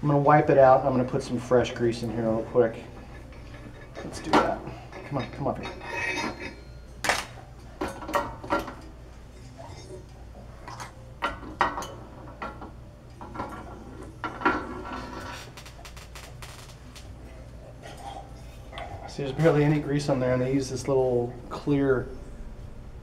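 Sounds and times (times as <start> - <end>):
metal tools clinking: 3.0 - 10.0
low hum: 11.8 - 23.0.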